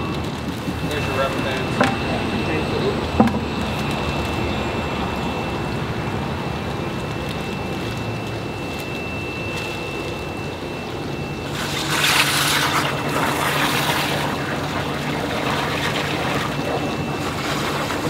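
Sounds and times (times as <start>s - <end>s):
low hum: 0.0s - 18.0s
running water: 11.4s - 18.0s.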